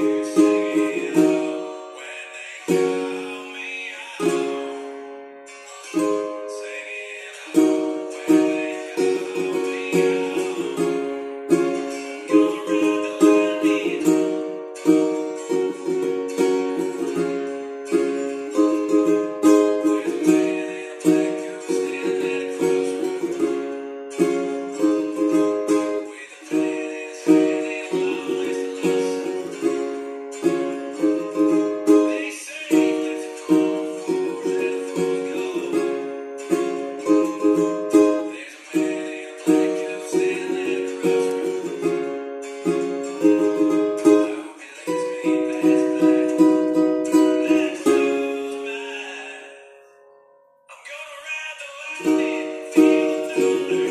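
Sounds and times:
ukulele strumming chords: 0.0 - 53.9.

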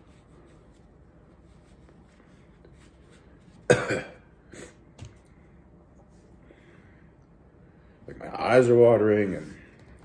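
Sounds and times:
man coughing: 3.7 - 4.8.

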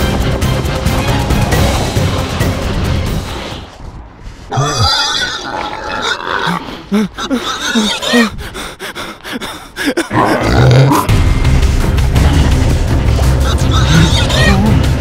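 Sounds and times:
music: 0.0 - 3.9, 10.2 - 15.0
pig-like grunts and oinks: 4.5 - 8.3, 10.0 - 11.1, 13.4 - 14.7.

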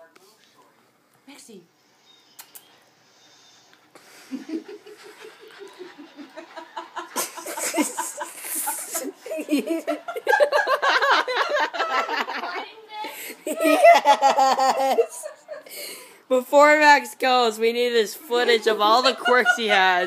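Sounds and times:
people laughing: 4.1 - 12.8, 13.4 - 15.8, 18.4 - 20.0.

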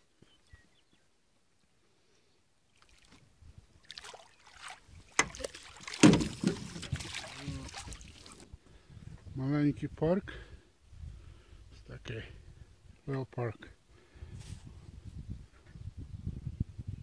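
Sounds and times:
water splashing: 2.7 - 3.2, 3.8 - 8.5.

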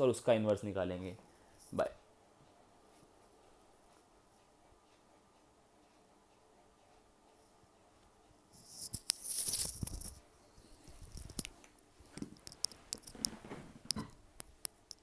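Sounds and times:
small irregular clicks and taps: 1.6 - 15.0
handling rustle: 8.6 - 11.6.

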